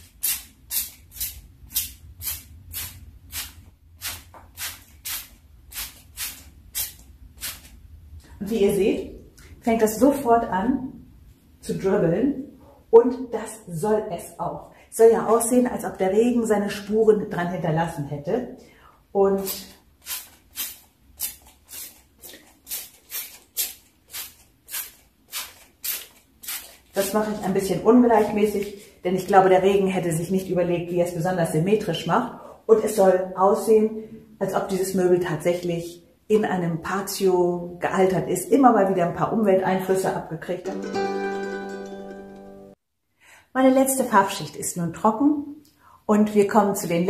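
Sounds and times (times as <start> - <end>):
spray bottle squirting: 0.0 - 7.8, 20.0 - 27.0.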